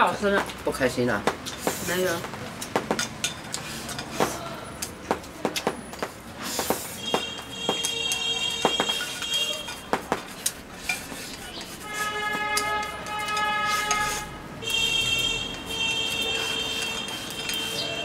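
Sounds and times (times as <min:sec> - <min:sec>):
chopsticks clicking on ceramic bowls: 0:02.5 - 0:05.7, 0:07.2 - 0:11.8, 0:12.4 - 0:14.9, 0:15.5 - 0:17.9.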